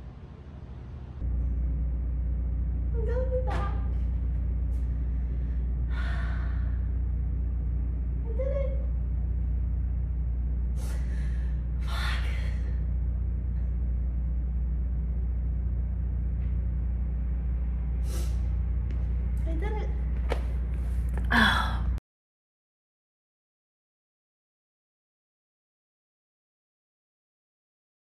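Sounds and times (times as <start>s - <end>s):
steady low hum: 0.0s - 22.0s
person breathing: 4.8s - 7.0s, 10.7s - 12.9s.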